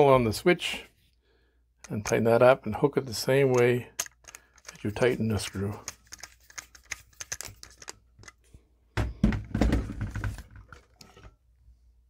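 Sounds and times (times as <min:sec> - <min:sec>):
screwdriver scraping clicks: 0:03.5 - 0:08.4.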